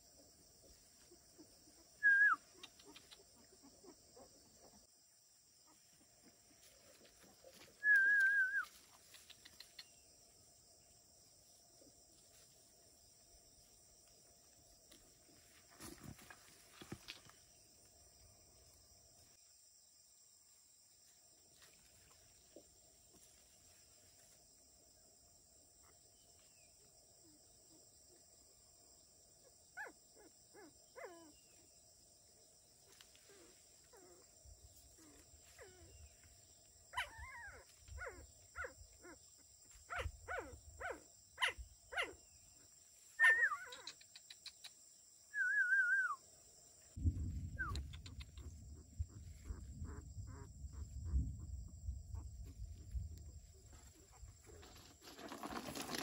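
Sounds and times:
insect drone: 0:00.0 - 0:56.0
dogs yelping and whimpering: 0:36.9 - 0:39.2, 0:39.9 - 0:42.2, 0:43.2 - 0:44.0.

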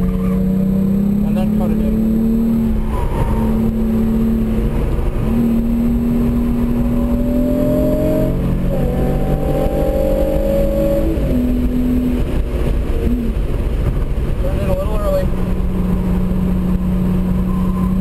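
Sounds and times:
car engine accelerating hard: 0:00.0 - 0:18.0.

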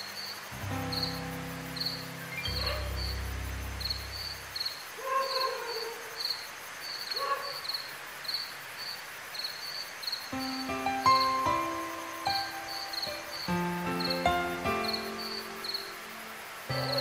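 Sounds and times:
crickets chirping: 0:00.0 - 0:17.0
low hum: 0:00.5 - 0:04.7.

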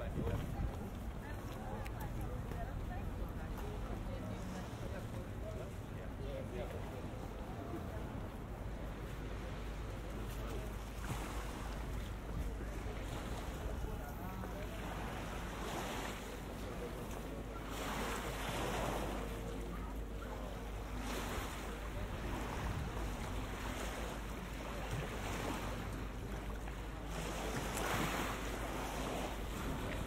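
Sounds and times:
wind: 0:00.0 - 0:30.0
river water washing against edge: 0:08.9 - 0:30.0.

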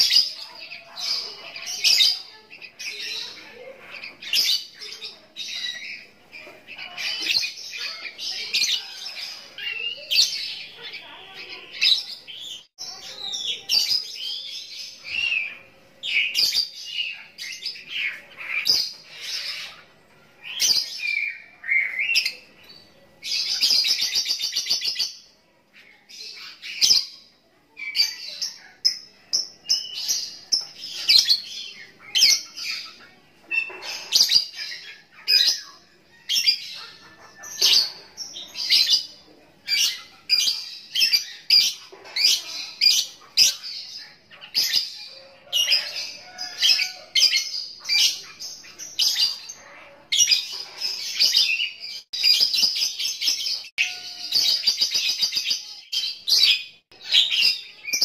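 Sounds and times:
lovebird chirping song: 0:00.0 - 0:58.0.

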